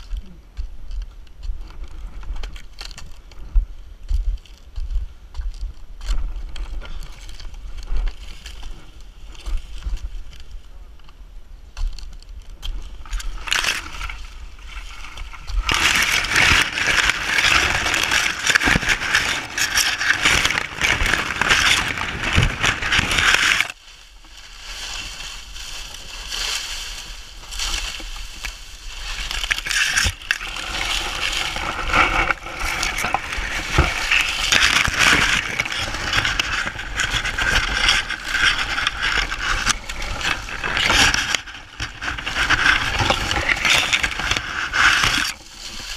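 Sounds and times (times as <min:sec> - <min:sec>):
dry palm fronds rustling and crackling: 0:00.9 - 0:05.0, 0:05.6 - 0:45.9.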